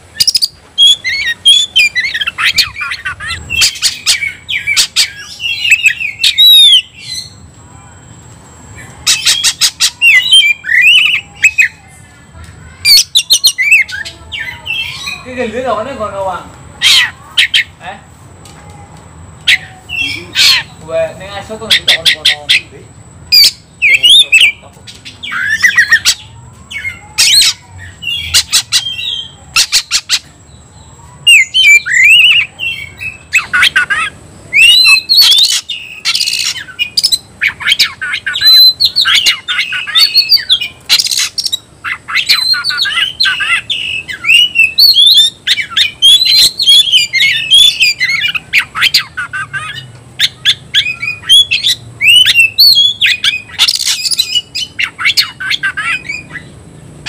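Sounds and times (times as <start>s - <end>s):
bird whistling and squawking: 0.1s - 7.4s, 9.0s - 11.8s, 12.8s - 15.3s, 23.3s - 30.4s, 31.2s - 56.6s.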